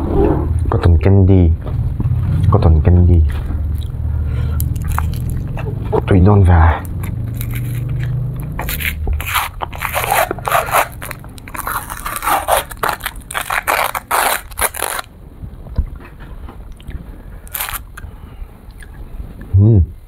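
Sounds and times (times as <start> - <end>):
wrapper crinkling and tearing: 4.6 - 5.6, 6.8 - 15.1, 17.4 - 18.0.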